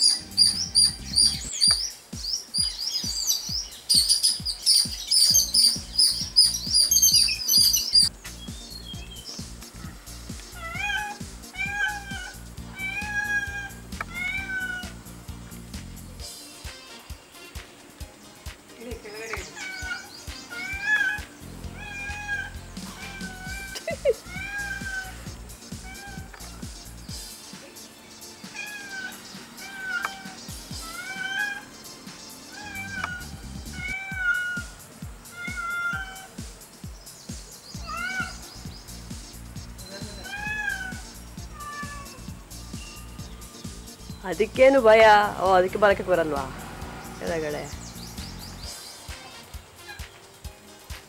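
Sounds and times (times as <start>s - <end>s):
music with a steady beat: 0.0s - 47.0s, 47.8s - 51.0s
cat meowing: 10.6s - 15.0s, 19.5s - 25.2s, 25.8s - 26.5s, 28.5s - 31.7s, 32.5s - 34.7s, 35.3s - 36.4s, 37.8s - 38.4s, 40.0s - 42.3s.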